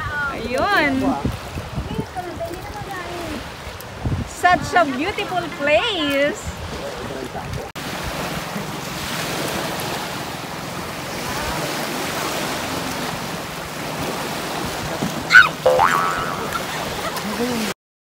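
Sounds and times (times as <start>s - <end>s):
wind on microphone: 0.0s - 8.4s
waves washing on pebbles: 0.3s - 17.7s.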